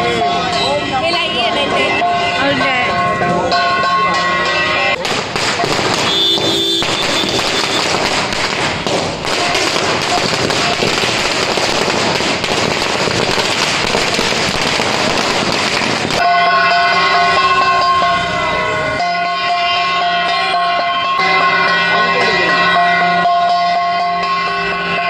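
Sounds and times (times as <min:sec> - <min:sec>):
horn-like wind instrument music: 0:00.0 - 0:05.0, 0:05.6 - 0:08.0, 0:16.2 - 0:25.0
fireworks hissing and crackling: 0:05.0 - 0:16.3.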